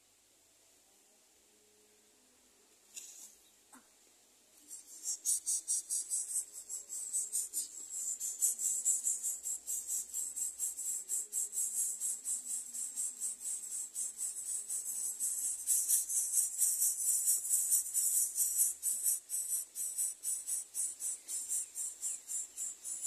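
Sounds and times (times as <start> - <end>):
insects chirring: 4.6 - 23.0.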